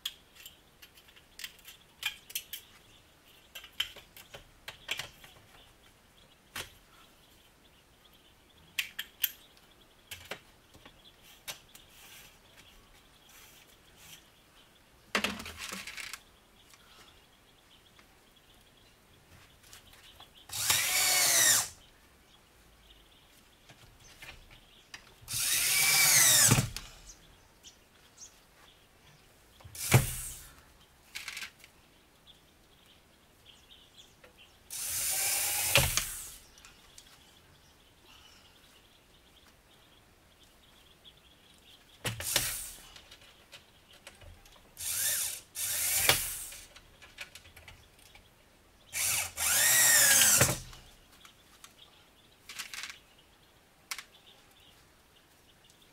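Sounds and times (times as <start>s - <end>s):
power tool on sheet metal: 20.5s - 21.8s, 25.3s - 26.8s, 29.7s - 30.5s, 34.7s - 36.4s, 42.1s - 42.9s, 44.8s - 46.7s, 49.0s - 50.8s.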